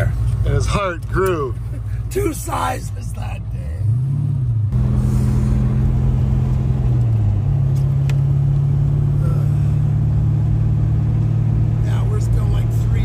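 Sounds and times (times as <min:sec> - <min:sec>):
car engine running: 0:00.0 - 0:13.0.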